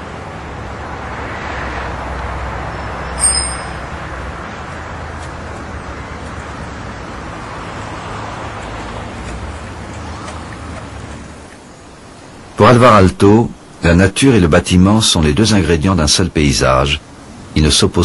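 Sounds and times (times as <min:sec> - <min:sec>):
vehicle passing: 0:00.0 - 0:11.5
road traffic rush: 0:00.0 - 0:18.0
short high-pitched ring: 0:03.2 - 0:03.9.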